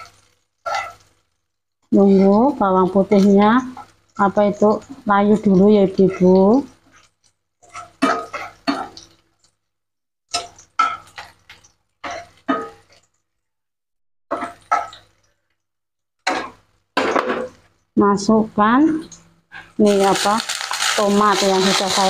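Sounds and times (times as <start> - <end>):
wooden spatula scraping wok: 0.0 - 1.3, 19.5 - 22.0
food sizzling in oil: 0.0 - 9.1, 19.8 - 22.0.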